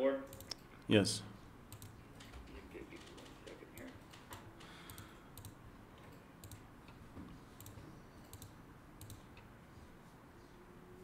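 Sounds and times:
computer mouse clicks: 0.3s - 0.6s, 1.7s - 7.0s, 7.6s - 9.5s.

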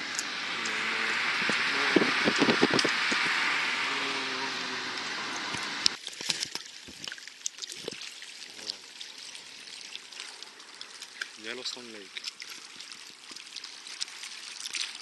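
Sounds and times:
road and wind noise in a car: 0.0s - 6.0s
waves lapping against rocks: 0.0s - 15.0s.

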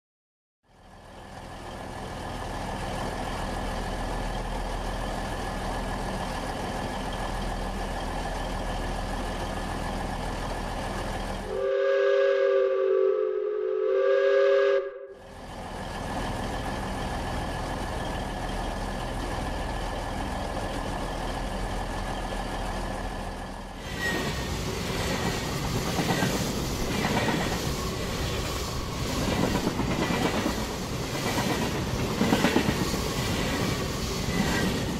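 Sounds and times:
train rumble: 0.7s - 34.9s
two-tone train horn: 11.5s - 15.2s.

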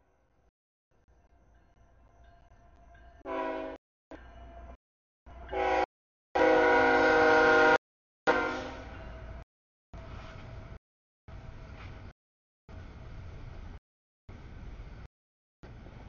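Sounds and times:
low rumble of train: 0.0s - 9.4s, 10.0s - 16.0s
train horn blasts: 3.2s - 3.8s, 5.4s - 9.2s.

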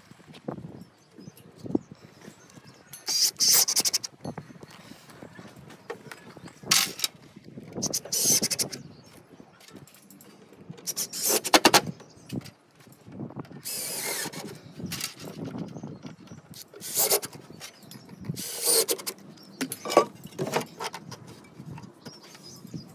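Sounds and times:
cordless drill driving screws: 13.6s - 14.6s, 16.7s - 17.4s, 18.3s - 19.1s.

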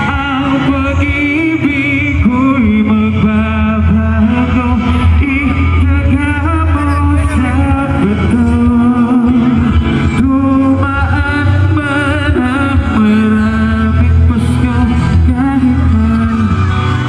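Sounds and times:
amplified music with bass: 0.0s - 17.0s
man singing into a microphone: 0.0s - 17.0s.

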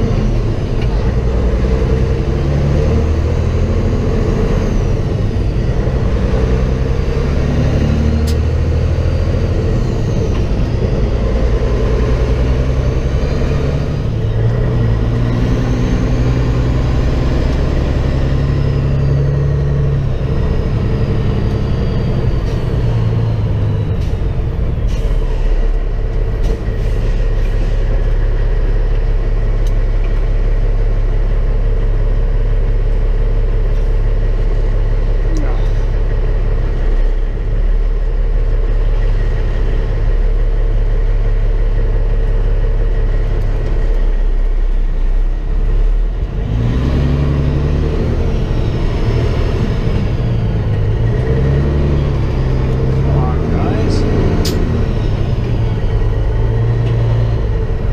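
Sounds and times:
truck diesel engine rumble: 0.0s - 57.9s
sharp clicks: 54.4s - 54.7s.

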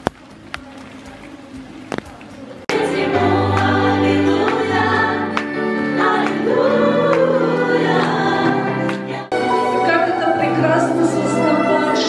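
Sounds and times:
many voices singing together: 2.7s - 12.0s
women singing into microphones: 2.7s - 12.0s.

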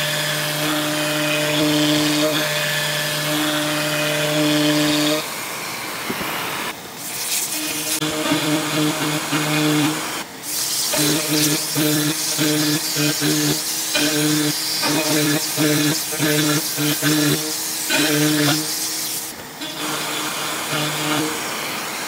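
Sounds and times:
router whine: 0.0s - 22.0s
shop vacuum air hiss: 5.2s - 22.0s.

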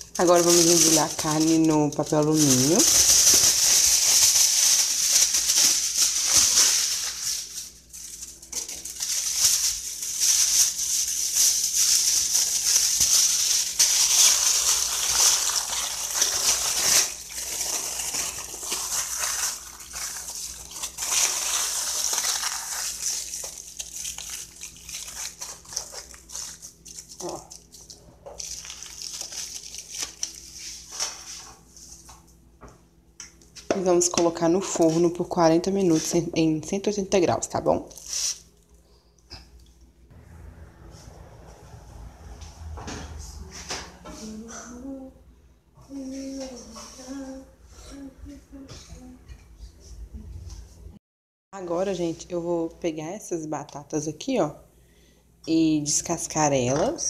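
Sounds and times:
aluminium foil crinkling: 0.0s - 32.0s, 36.8s - 38.7s.

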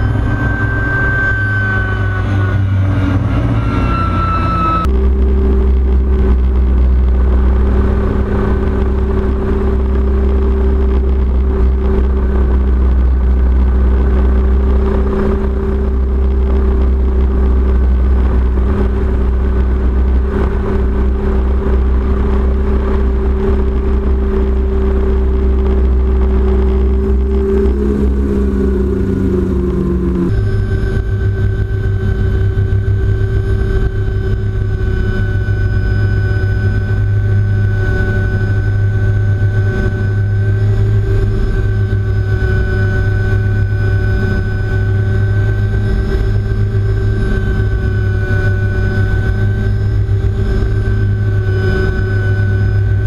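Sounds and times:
helicopter engine and rotor drone: 0.0s - 53.0s.

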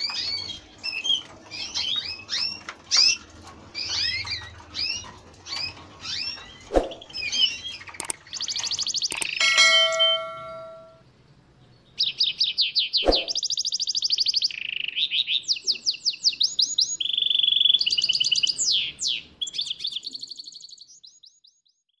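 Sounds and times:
canary singing rapid trills: 0.0s - 10.8s
chime ringing: 9.1s - 11.0s.

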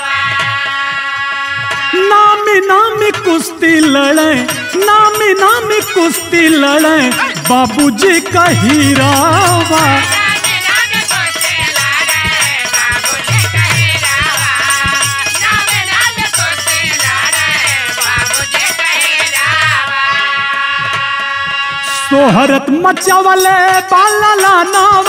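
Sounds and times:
drum beats: 0.0s - 25.0s
folk song singing: 0.0s - 25.0s
fast even jingling: 2.9s - 19.8s.

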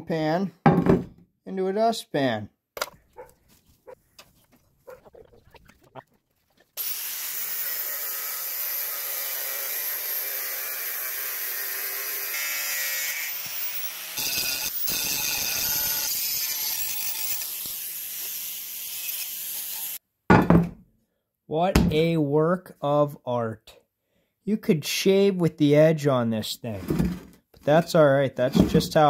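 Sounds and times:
angle grinder cutting steel: 6.8s - 20.0s
grinder grinding metal edge: 6.8s - 20.0s.

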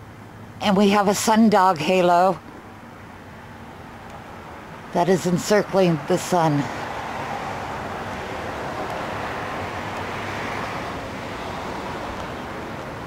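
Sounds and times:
outdoor rushing noise: 6.7s - 13.0s.

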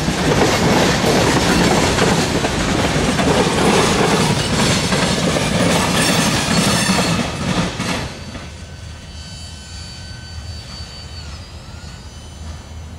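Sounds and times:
freight train wheels rumbling: 0.0s - 12.9s
high wheel squeal: 8.1s - 12.9s.

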